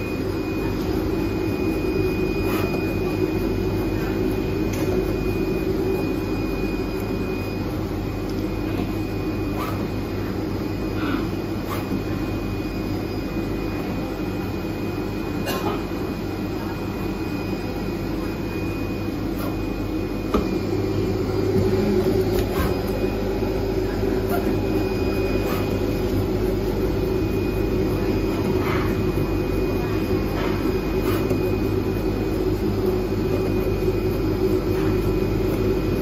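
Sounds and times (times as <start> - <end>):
cutting machine humming: 18.1 - 36.0.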